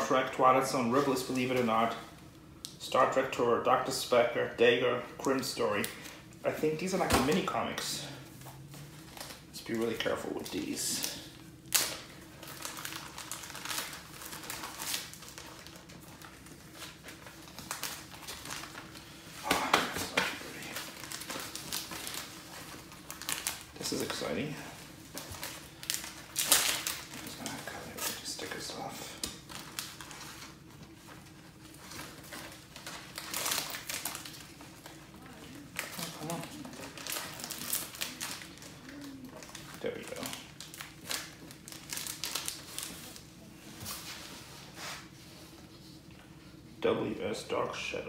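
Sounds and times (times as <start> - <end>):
plastic bag crinkling: 5.3 - 43.3
paper comics rustling: 6.6 - 45.7.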